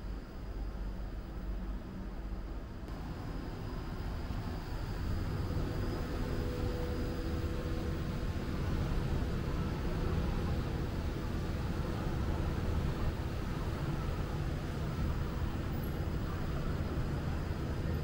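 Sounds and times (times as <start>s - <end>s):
distant city traffic rumble: 0.0s - 18.0s
faint machine hum: 0.0s - 18.0s.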